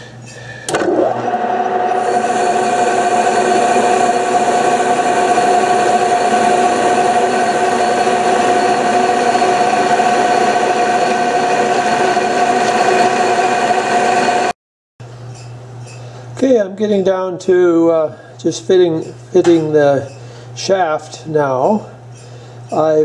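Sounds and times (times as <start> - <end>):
metal lathe cutting with loud whine: 0.7 - 14.5.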